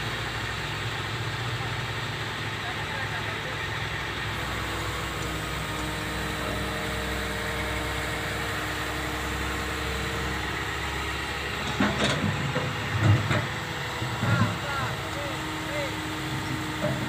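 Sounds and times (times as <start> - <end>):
excavator engine and hydraulics: 0.0 - 17.0
bucket clanks and creaks: 11.6 - 14.6.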